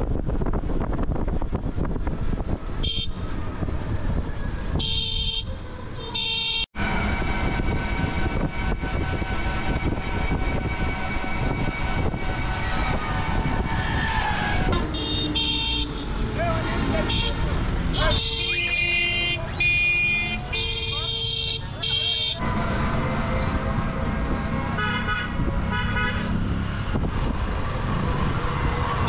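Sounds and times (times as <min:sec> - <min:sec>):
road noise rumble: 0:00.0 - 0:29.0
vehicle horn honks: 0:02.8 - 0:03.2, 0:04.8 - 0:06.7, 0:14.9 - 0:16.1, 0:17.0 - 0:22.4, 0:24.8 - 0:26.3.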